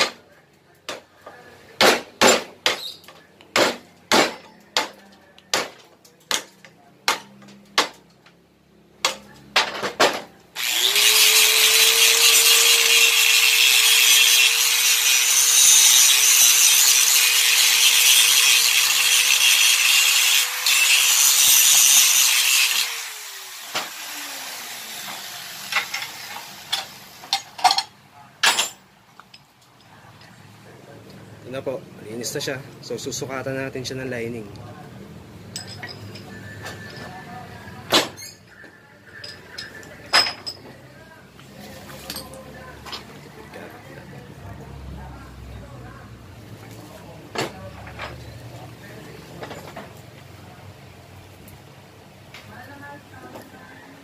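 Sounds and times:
grinder spinning down whine: 10.6 - 14.6
angle grinder wire wheel scraping: 10.6 - 27.6.

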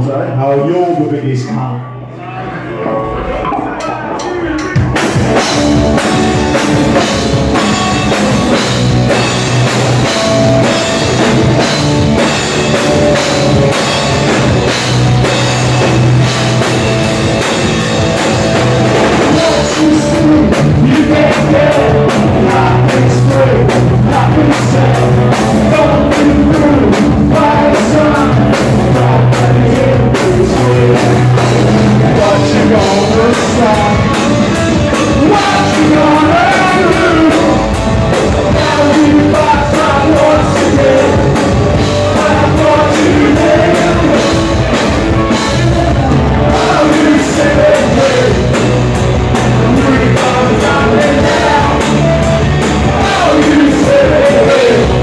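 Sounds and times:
bass guitar: 0.0 - 55.0
distorted electric guitar: 1.8 - 55.0
drum kit: 3.2 - 55.0
man singing: 19.0 - 55.0.

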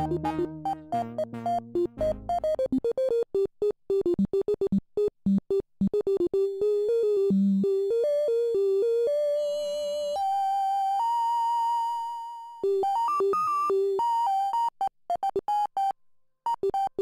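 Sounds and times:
synthesizer melody: 0.0 - 3.2.

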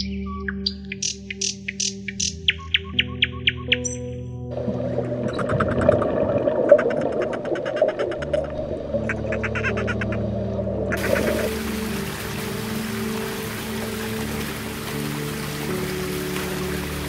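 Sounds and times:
soft background music: 0.0 - 17.0
water hiss: 11.0 - 17.0.

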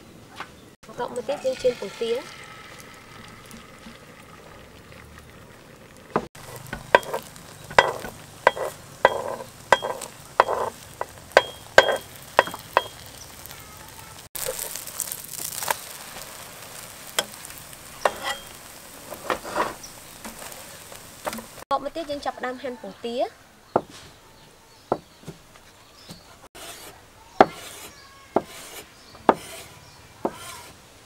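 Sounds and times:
egg sizzling in a pan: 0.8 - 22.3
metal spatula tapping and scraping pan: 6.2 - 13.5, 16.8 - 20.5.

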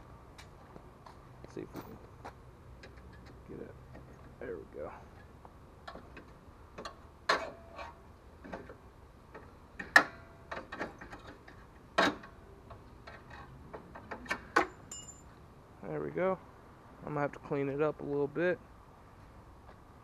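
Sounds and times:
sharp metal clanks: 14.3 - 15.3.

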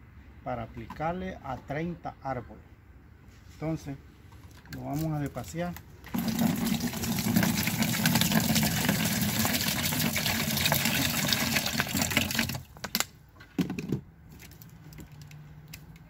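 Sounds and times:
water splashing into plastic bucket: 6.1 - 12.9.

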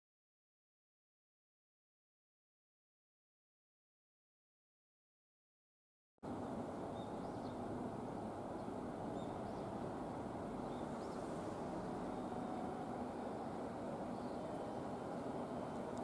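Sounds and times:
low outdoor rumble: 6.2 - 16.0.

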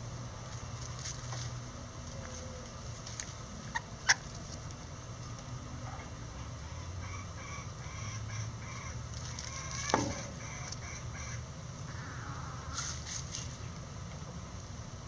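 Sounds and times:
scratching in dry leaves: 0.4 - 4.8, 9.1 - 10.9, 12.6 - 13.8.

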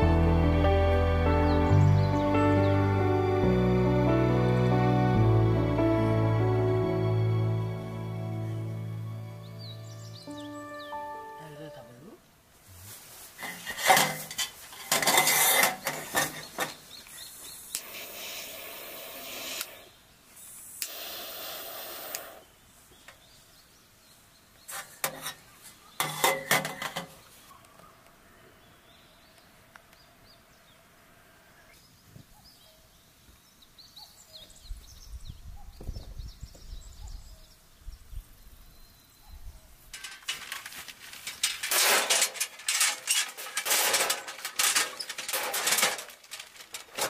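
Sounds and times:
gas lighter hissing: 17.8 - 22.4
metal coil holder clinking: 26.0 - 27.2, 39.9 - 47.0.

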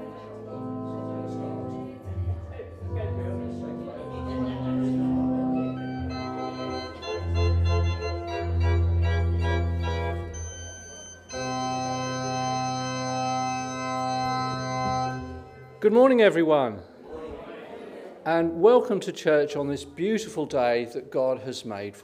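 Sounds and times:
church organ chords: 0.0 - 16.6.

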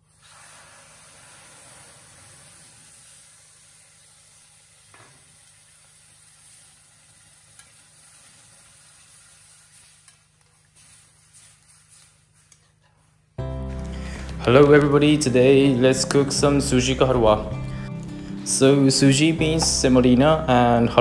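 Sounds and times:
liquid pouring into hot pan: 0.0 - 12.0
sizzling and bubbling: 0.0 - 12.4.

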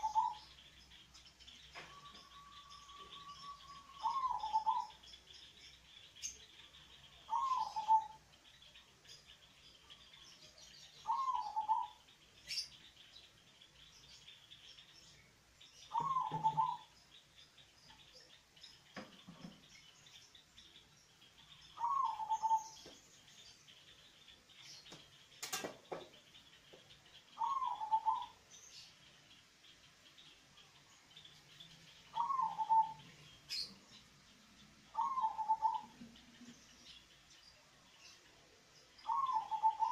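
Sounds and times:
dove cooing: 0.0 - 0.4, 1.8 - 5.0, 7.3 - 8.2, 11.0 - 12.0, 15.9 - 16.9, 21.8 - 22.8, 27.4 - 28.4, 32.1 - 33.0, 34.9 - 36.0, 39.0 - 39.9
faint high chirping: 0.0 - 39.9.

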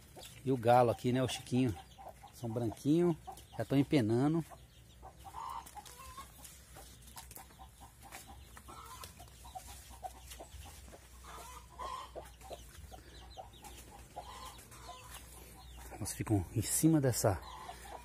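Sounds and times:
chickens clucking: 0.0 - 18.0
steps through dry leaves: 5.4 - 12.0, 13.6 - 15.9.

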